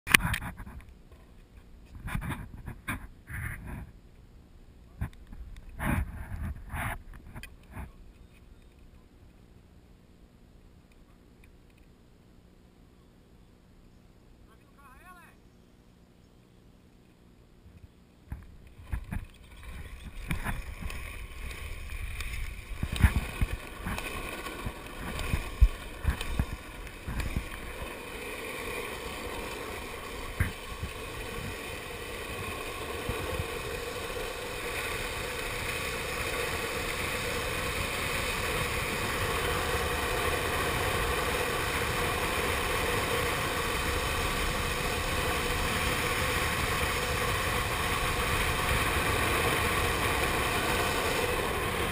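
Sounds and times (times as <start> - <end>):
longboard wheels rolling on asphalt: 0.1 - 8.9, 17.7 - 51.9
wind rush: 18.8 - 51.9.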